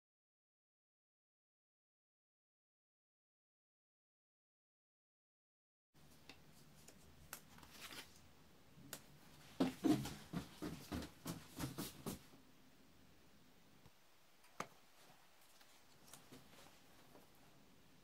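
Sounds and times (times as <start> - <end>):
paper rustling: 6.5 - 8.2.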